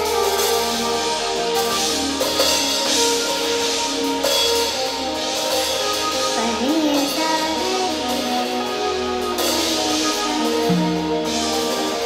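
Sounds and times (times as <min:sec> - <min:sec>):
drum kit: 0:00.0 - 0:12.0
electric guitar: 0:00.0 - 0:12.0
sliding melodic line: 0:07.6 - 0:12.0.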